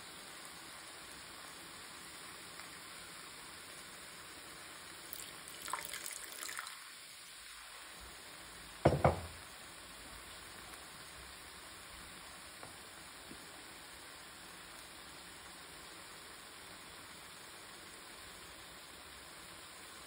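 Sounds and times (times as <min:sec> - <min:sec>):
food sizzling in a pan: 0:00.0 - 0:20.0
sharp knocks: 0:08.9 - 0:09.4.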